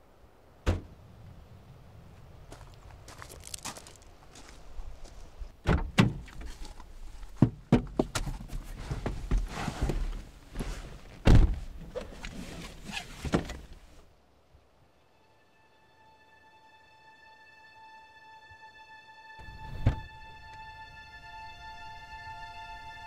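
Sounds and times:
car door thunking shut: 0.6s - 0.9s, 11.2s - 11.7s
footsteps: 2.5s - 5.5s
rustle of climbing into seat: 8.2s - 13.9s.

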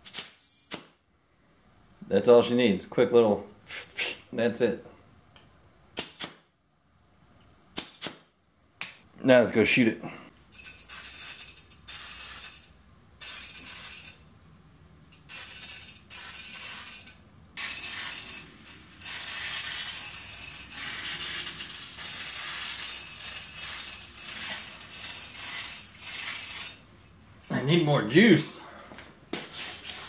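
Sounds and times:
spray can hissing: 10.6s - 14.2s, 15.2s - 26.8s.

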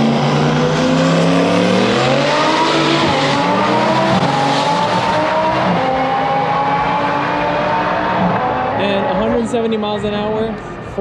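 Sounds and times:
race car engine accelerating: 0.0s - 11.0s
second race car: 0.0s - 11.0s.

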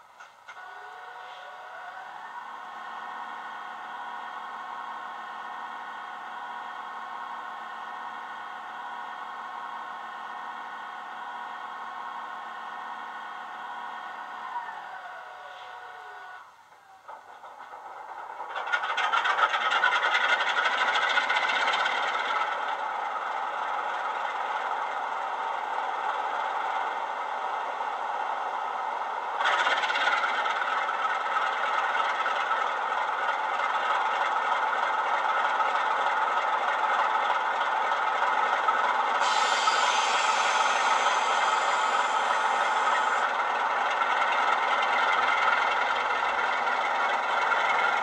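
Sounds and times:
diesel engine idling from small speaker: 0.6s - 17.3s, 18.4s - 48.0s
high hiss: 39.2s - 43.2s.

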